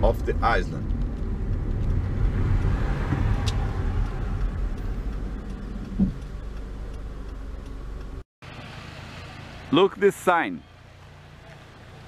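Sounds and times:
car engine and road rumble: 0:00.0 - 0:12.0
thump: 0:03.0 - 0:03.4.

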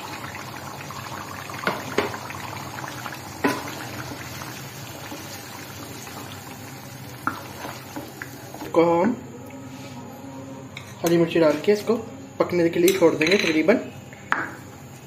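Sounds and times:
food sizzling in a pan: 0:00.0 - 0:08.7.

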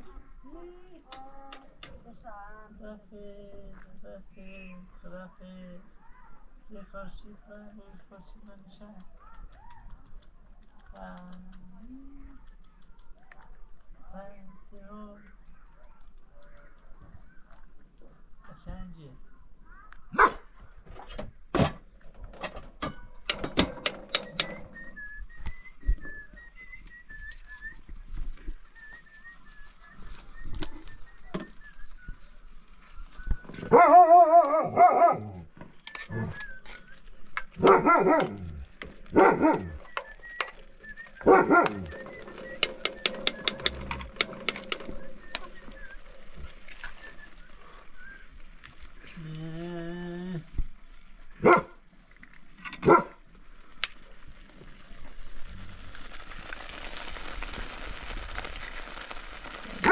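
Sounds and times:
dog barking: 0:20.1 - 0:20.5, 0:33.7 - 0:35.5, 0:37.6 - 0:39.8, 0:41.2 - 0:41.9, 0:51.4 - 0:51.8, 0:52.8 - 0:53.2
sharp knocks and clicks: 0:21.6 - 0:24.8
thin high whistle-like tone: 0:24.1 - 0:33.7, 0:36.0 - 0:37.4, 0:39.6 - 0:48.4.

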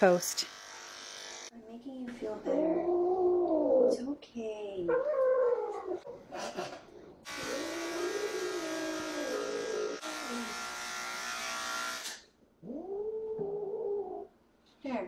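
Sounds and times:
electric clippers buzzing: 0:00.0 - 0:01.5, 0:07.2 - 0:12.3.

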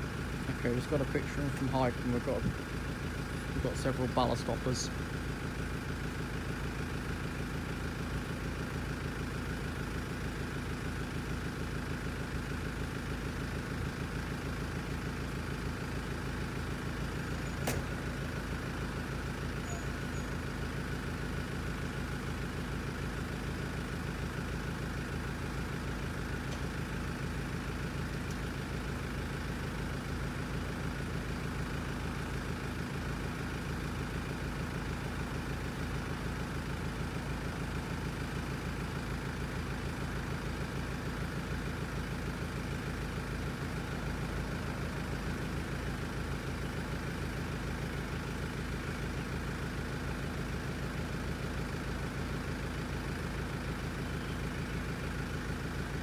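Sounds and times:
engine idling: 0:00.0 - 0:56.0
sharp click: 0:17.6 - 0:17.9.

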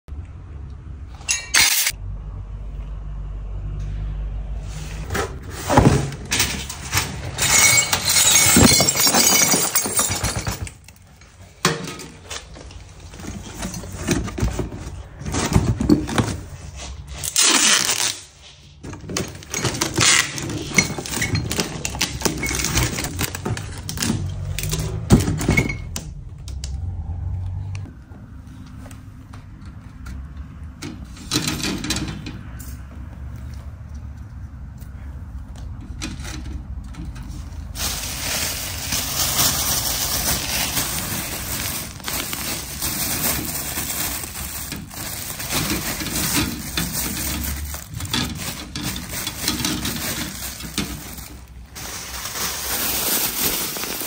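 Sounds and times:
broken glass clinking: 0:07.4 - 0:10.6
cardboard box crackling and tearing: 0:17.3 - 0:18.3.

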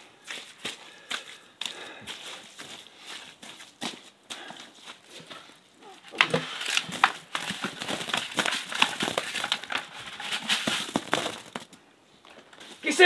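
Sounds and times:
feet stamping in wet clay: 0:00.0 - 0:11.6
tarp crinkling: 0:05.8 - 0:11.8.

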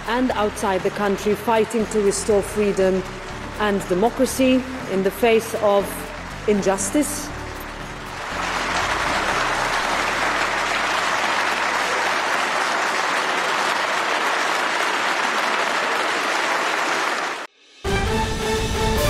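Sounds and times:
crowd applauding: 0:06.2 - 0:17.5.

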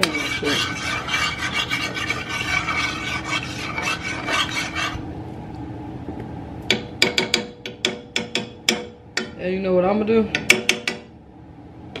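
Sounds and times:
metal spoon scraping a frying pan: 0:00.0 - 0:05.0.

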